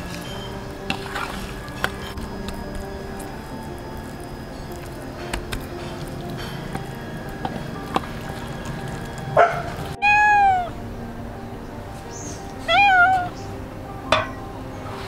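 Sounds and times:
cat meowing: 0:10.0 - 0:10.8, 0:12.6 - 0:13.4.

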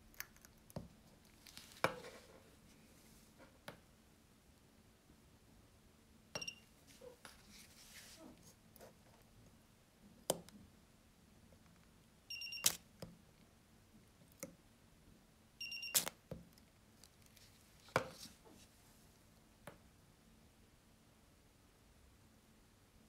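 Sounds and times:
welder buzzer beep: 0:12.3 - 0:12.8, 0:15.6 - 0:16.1.

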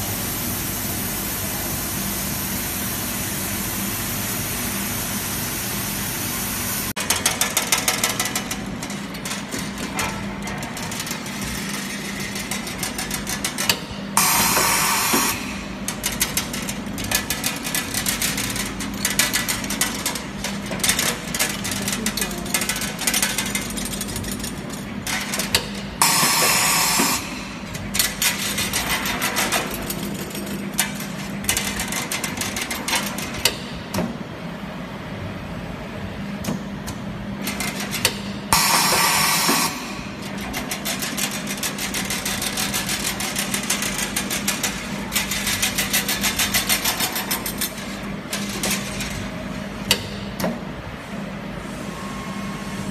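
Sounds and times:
machine humming and clicking: 0:00.0 - 0:52.9
loud machine hiss: 0:14.2 - 0:15.7, 0:26.0 - 0:27.6, 0:38.5 - 0:40.0.

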